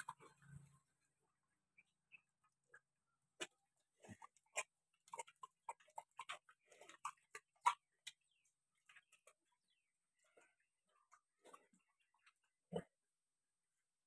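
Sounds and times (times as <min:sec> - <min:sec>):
pig eating wet feed: 0:00.0 - 0:00.8, 0:02.7 - 0:12.8.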